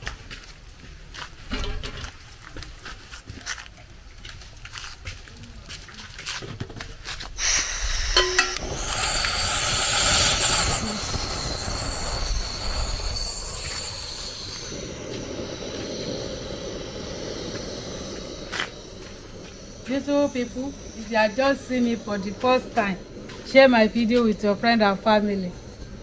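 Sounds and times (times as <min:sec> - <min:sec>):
pot boiling hissing rush: 0:00.0 - 0:26.0
thin high squeal: 0:10.0 - 0:16.0.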